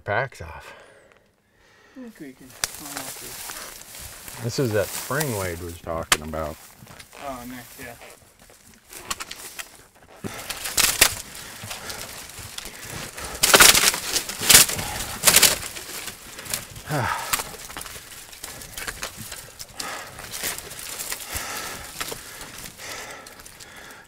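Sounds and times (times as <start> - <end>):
branches crackling and snapping: 2.3 - 24.0
person groaning: 16.8 - 17.5.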